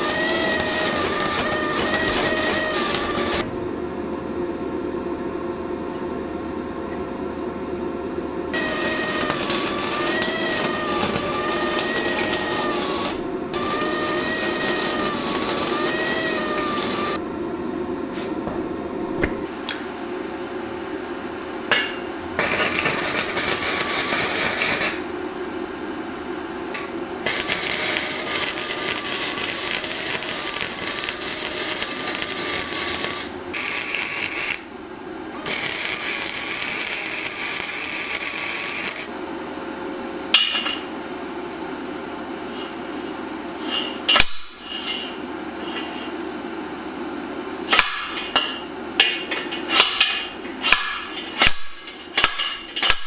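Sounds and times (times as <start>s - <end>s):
power tool running: 0.0s - 3.5s, 8.6s - 17.2s, 27.2s - 34.7s, 35.4s - 39.1s.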